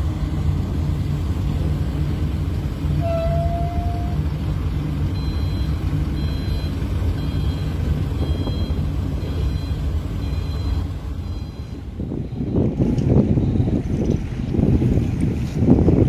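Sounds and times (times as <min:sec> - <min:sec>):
ship diesel engines droning: 0:00.0 - 0:16.0
faint high beeps: 0:05.2 - 0:12.6.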